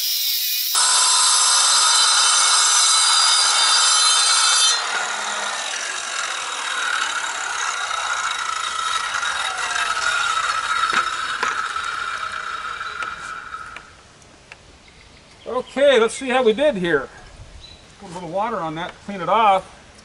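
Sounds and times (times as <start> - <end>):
circular saw cutting stone: 0.0 - 14.0
quiet steady noise: 5.0 - 20.0.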